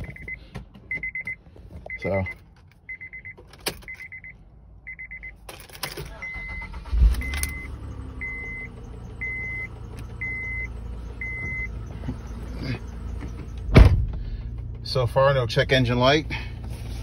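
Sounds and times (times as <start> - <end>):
dashboard chime beeping: 0.0 - 5.4, 6.1 - 12.4
car engine starting and idling: 0.0 - 17.0.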